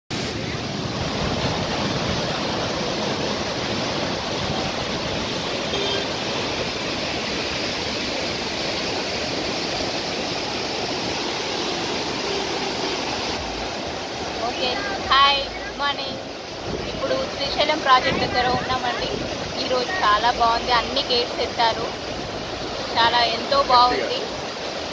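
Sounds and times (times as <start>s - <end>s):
floodwater rushing: 0.1s - 24.9s.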